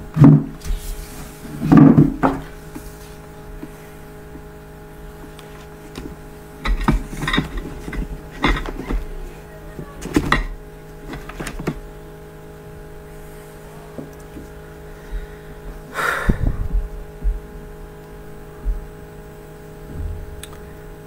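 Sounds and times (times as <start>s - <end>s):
steady hum: 0.0s - 21.0s
rustling thump: 19.8s - 20.4s
knocks and clatter: 19.9s - 20.6s.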